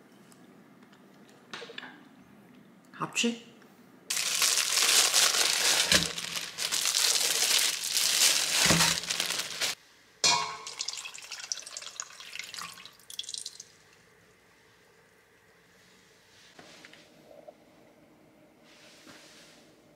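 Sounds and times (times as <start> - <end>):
plastic bag crinkling: 4.1 - 9.8.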